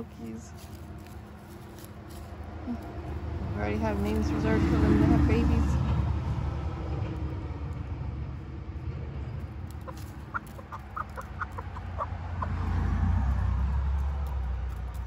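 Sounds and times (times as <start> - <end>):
low rumble: 0.0 - 15.0
chicken clucking: 9.7 - 12.6.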